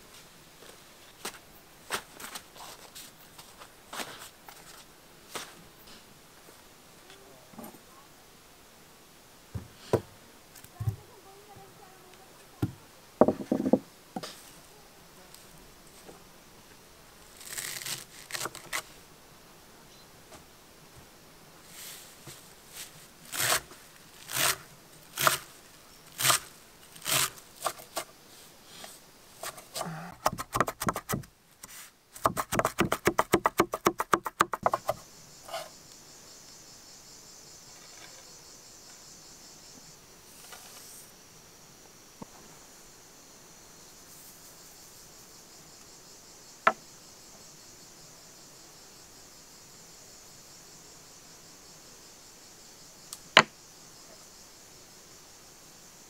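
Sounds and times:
insects droning: 0:00.0 - 0:56.0
parsley rustling: 0:17.4 - 0:18.8
knife chopping herbs on wooden board: 0:30.2 - 0:31.3, 0:32.2 - 0:35.0.

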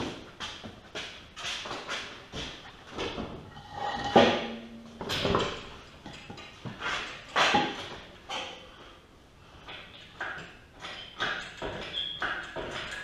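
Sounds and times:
metal parts and tools clanking: 0:03.0 - 0:08.6, 0:09.9 - 0:13.0.

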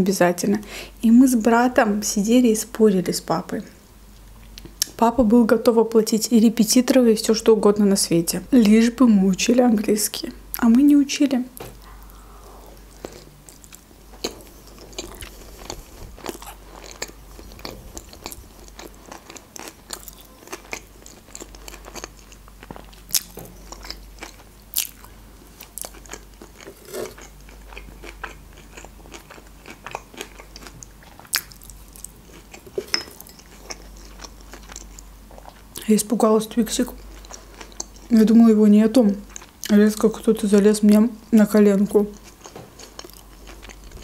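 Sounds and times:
chewing with mouth clicks: 0:11.8 - 0:35.8, 0:36.8 - 0:38.1, 0:39.3 - 0:39.8, 0:42.1 - 0:44.0.

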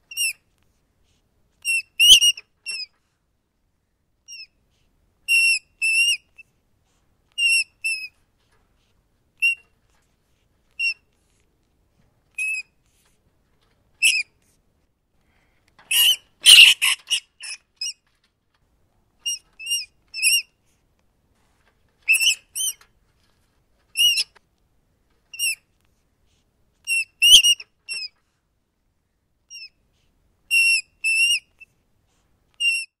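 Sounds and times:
rat squeaking: 0:00.1 - 0:00.4, 0:01.6 - 0:03.0, 0:04.3 - 0:04.6, 0:05.3 - 0:06.5, 0:07.3 - 0:08.2, 0:09.4 - 0:09.8, 0:10.7 - 0:11.2, 0:12.3 - 0:13.1, 0:14.0 - 0:14.4, 0:15.9 - 0:18.2, 0:19.2 - 0:20.6, 0:22.0 - 0:24.4, 0:25.3 - 0:25.6, 0:26.8 - 0:28.2, 0:29.5 - 0:29.8, 0:30.5 - 0:31.8, 0:32.6 - 0:33.0.

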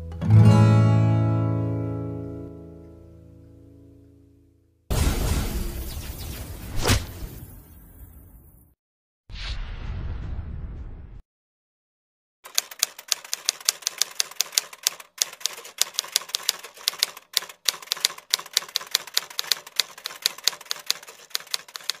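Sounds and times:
typewriter key clicks: 0:12.5 - 0:22.0.

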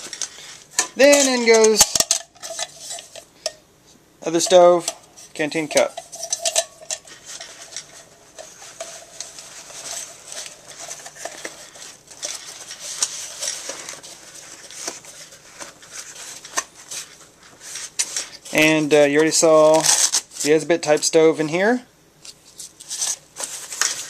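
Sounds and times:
metallic clink: 0:05.8 - 0:07.0
fabric pouch rustling and scraping: 0:07.0 - 0:20.6.

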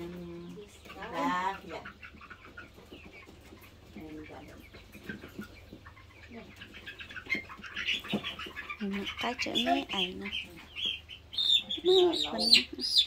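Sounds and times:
hens clucking: 0:00.0 - 0:13.0.

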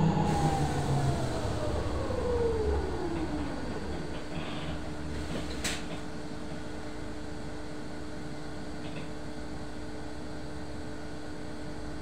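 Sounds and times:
low rumble: 0:00.0 - 0:07.1
bus cabin droning hum: 0:00.0 - 0:12.0.

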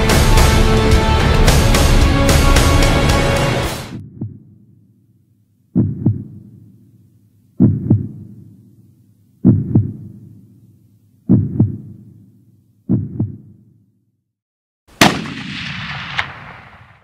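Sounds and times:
heartbeat thumps: 0:04.0 - 0:04.6, 0:05.7 - 0:06.6, 0:07.6 - 0:08.5, 0:09.4 - 0:10.4, 0:11.3 - 0:12.1, 0:12.9 - 0:13.6
rifle shot ringing out: 0:15.0 - 0:17.0.

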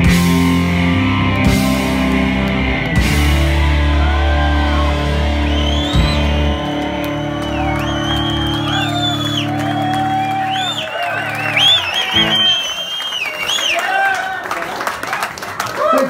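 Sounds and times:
electric guitar and bass chord: 0:00.0 - 0:10.6
audience whooping and whistling: 0:03.9 - 0:14.6.

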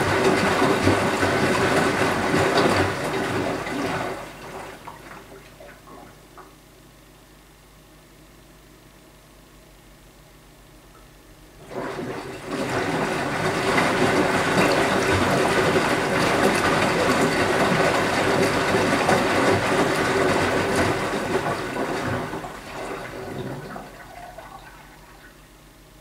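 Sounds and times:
water rushing into washing machine: 0:00.0 - 0:06.4, 0:11.6 - 0:25.6.

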